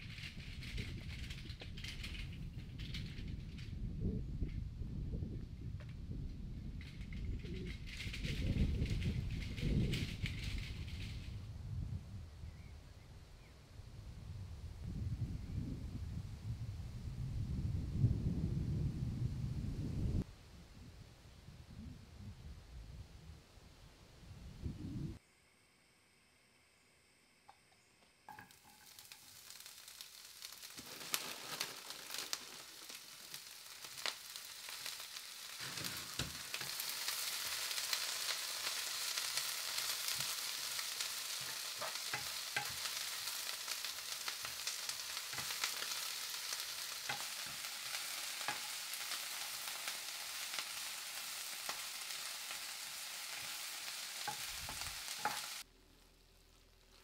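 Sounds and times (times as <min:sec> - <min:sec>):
vegetables sizzling in frying pan: 0:28.3 - 0:55.7
spatula scraping against pan: 0:34.0 - 0:55.6.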